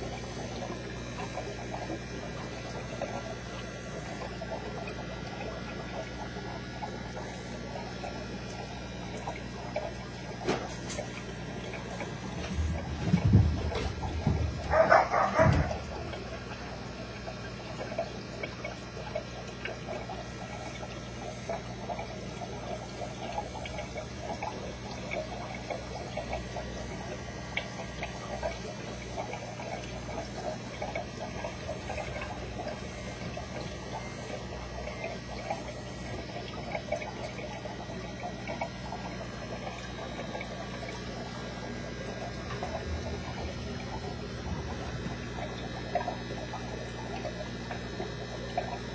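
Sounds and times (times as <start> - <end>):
aquarium water bubbling: 0.0 - 48.9
low hum: 39.0 - 47.5.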